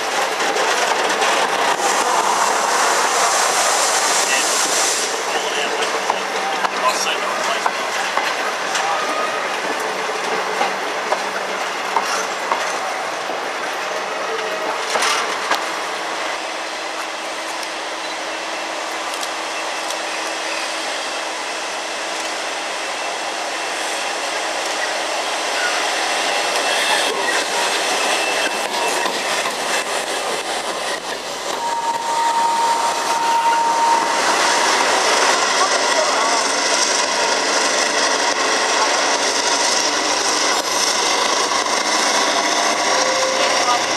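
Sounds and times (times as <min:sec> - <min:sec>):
train moving off: 0:00.0 - 0:43.9
train wheels clicking over rail joints: 0:09.6 - 0:12.8.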